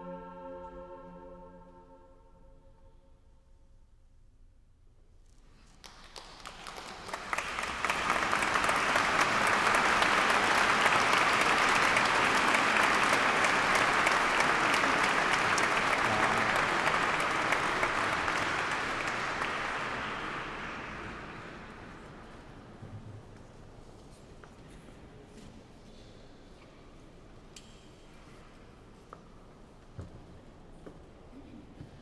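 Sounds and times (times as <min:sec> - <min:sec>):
audience applauding: 0:05.6 - 0:22.5.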